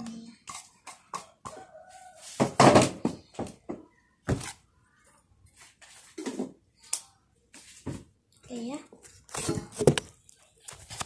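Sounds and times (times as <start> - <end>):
objects thudding on a table: 2.4 - 4.4.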